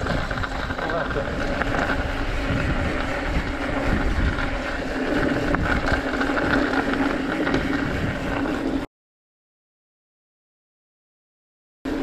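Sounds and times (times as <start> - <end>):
bike tyres rolling on dirt: 0.0 - 8.9
wind rush on microphone: 0.0 - 8.9.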